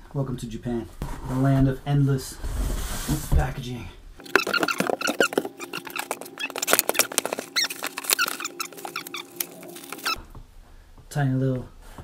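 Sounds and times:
cardboard and plastic packaging rustling: 4.2s - 10.2s
sharp clicks and squeaks: 4.2s - 10.2s.

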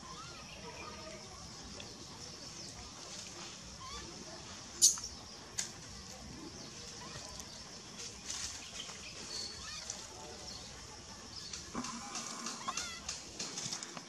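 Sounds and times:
faint animal squeaks and chirps: 0.0s - 1.2s, 3.6s - 5.3s, 9.1s - 10.4s, 11.9s - 13.1s.

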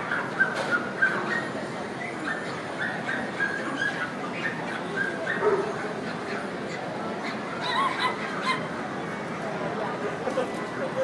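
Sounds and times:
crowd murmur: 0.0s - 11.0s
dogs whining and yipping: 7.3s - 8.6s.

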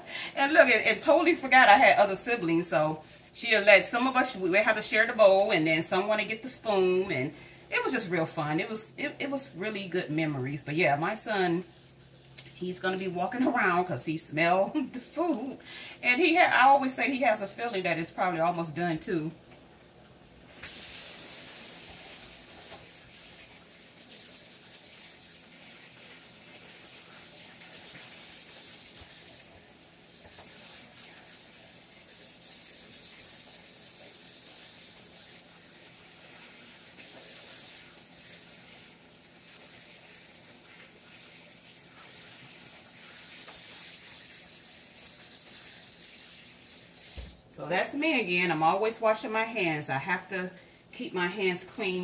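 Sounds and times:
wings sizzling in oil: 20.4s - 47.5s.

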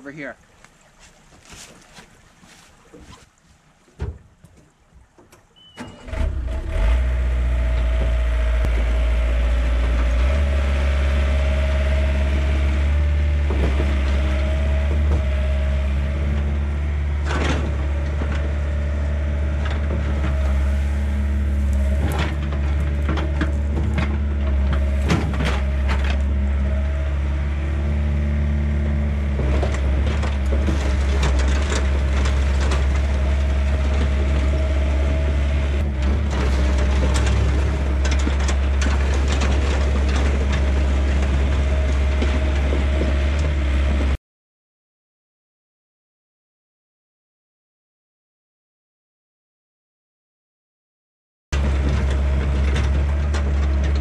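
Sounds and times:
diesel engine running: 5.9s - 44.2s, 51.6s - 54.0s.

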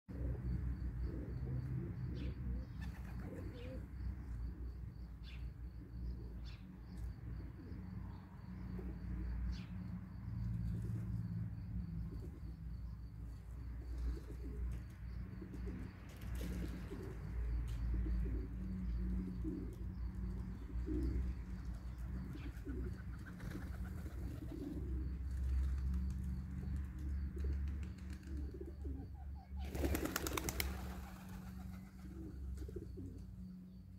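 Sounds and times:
pigeons cooing: 0.1s - 4.0s, 13.8s - 14.6s, 15.4s - 25.4s, 27.3s - 33.4s
clatter of pigeon wings: 29.6s - 32.7s.

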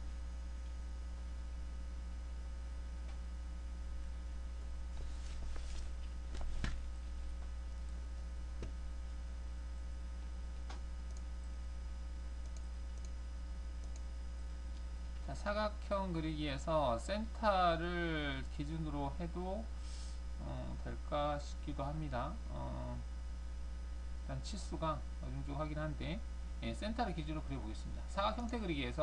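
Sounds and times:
electrical mains hum: 0.0s - 29.0s
mouse clicks: 10.6s - 11.3s, 12.4s - 13.2s, 13.8s - 14.1s.

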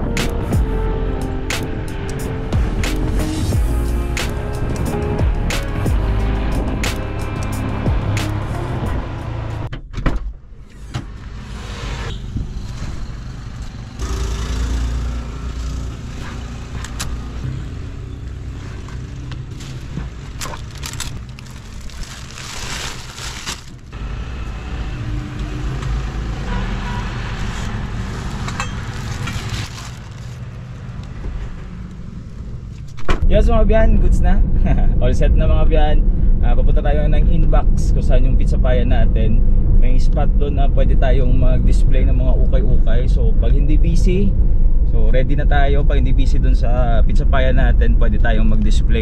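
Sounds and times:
car engine and tyre rumble: 0.0s - 49.0s
roadside traffic: 0.0s - 49.0s
plastic-wrapped bundles rustling: 19.4s - 23.9s, 27.5s - 30.6s.

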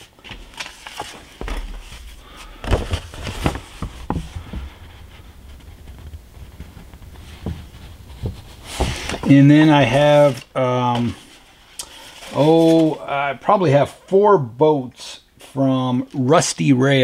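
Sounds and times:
paper sheets rustling: 0.0s - 13.1s.

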